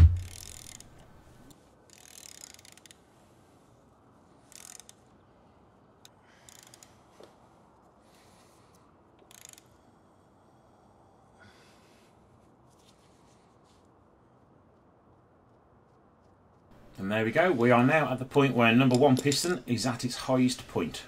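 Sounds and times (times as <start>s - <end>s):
hand ratchet clicking: 0.0s - 1.1s, 1.9s - 3.0s, 4.5s - 5.0s, 6.0s - 7.0s, 9.2s - 9.7s.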